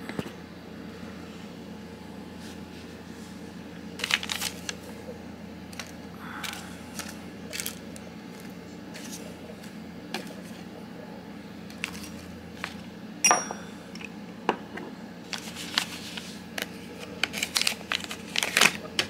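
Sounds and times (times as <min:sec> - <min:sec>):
plastic bag crackling: 0:03.9 - 0:05.0, 0:05.7 - 0:09.3, 0:15.3 - 0:19.0
small bottle clinking: 0:13.2 - 0:13.6.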